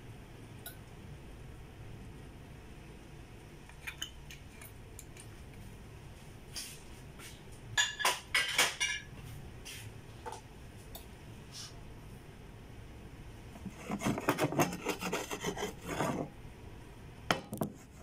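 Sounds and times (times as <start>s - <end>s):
low steady hum: 0.0s - 18.0s
dishes and utensils clinking: 7.8s - 9.1s.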